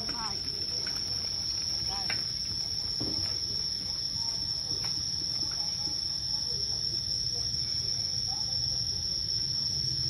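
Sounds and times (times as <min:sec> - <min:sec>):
insects droning: 0:00.0 - 0:10.0.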